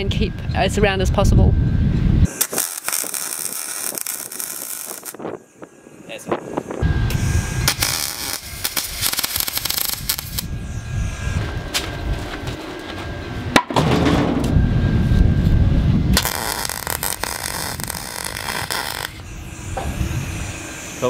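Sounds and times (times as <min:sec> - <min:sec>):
welding arc crackling and spitting: 0:02.3 - 0:05.2, 0:07.6 - 0:10.5, 0:16.2 - 0:19.2.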